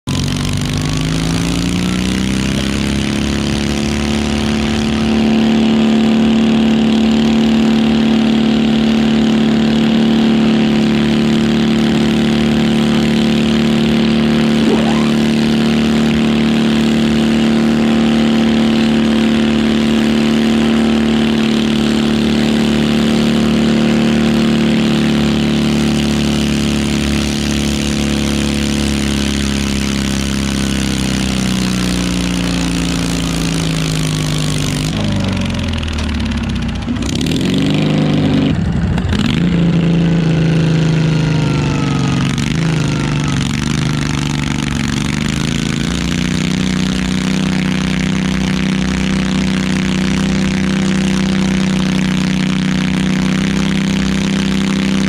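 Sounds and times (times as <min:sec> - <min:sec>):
tractor engine revving under load: 0:36.9 - 0:55.0.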